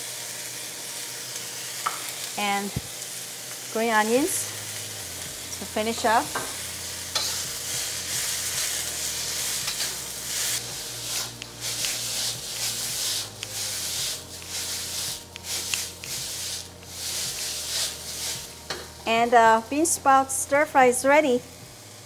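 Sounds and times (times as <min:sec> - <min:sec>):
vegetables sizzling in a wok: 0:00.0 - 0:22.0
metal spatula scraping a wok: 0:07.1 - 0:18.9.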